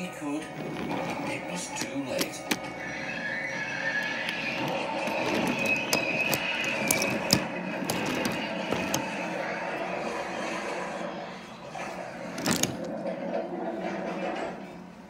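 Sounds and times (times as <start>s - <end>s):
wheels clicking over track joints: 0.5s - 3.0s, 3.9s - 9.3s, 12.3s - 13.1s
toy train wheels rumbling: 0.5s - 9.5s, 12.3s - 13.1s.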